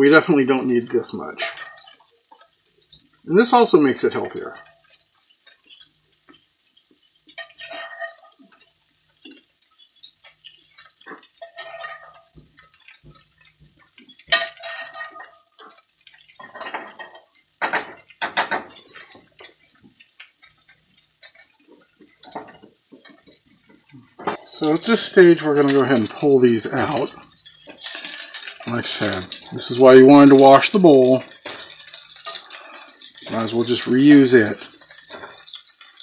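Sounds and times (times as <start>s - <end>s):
metal spoon scraping a skillet: 1.3s - 3.2s, 4.0s - 36.0s
metal clinks: 4.5s - 26.1s.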